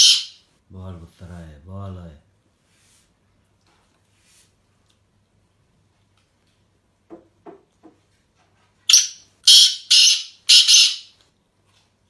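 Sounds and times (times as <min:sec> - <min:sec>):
francolin harsh rasping call: 0:00.0 - 0:00.4, 0:08.9 - 0:11.1.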